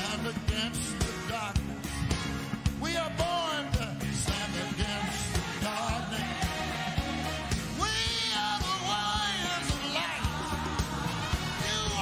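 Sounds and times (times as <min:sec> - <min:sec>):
man singing into a microphone: 0:00.0 - 0:01.6, 0:02.8 - 0:06.2, 0:07.8 - 0:10.4, 0:11.6 - 0:12.0
drum beat: 0:00.0 - 0:12.0
live band playing: 0:00.0 - 0:12.0.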